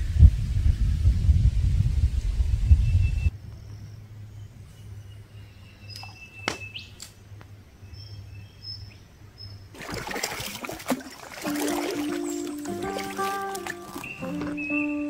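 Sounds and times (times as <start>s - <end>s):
bird chirps: 2.8s - 7.0s, 11.6s - 15.0s
rushing splashing water: 9.8s - 14.4s
background music with held notes: 11.4s - 15.0s.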